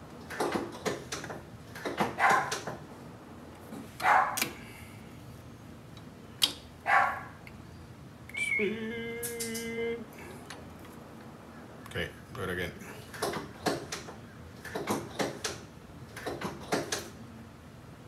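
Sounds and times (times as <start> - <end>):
dog barking: 2.1 - 2.6, 4.0 - 4.4, 6.8 - 7.4.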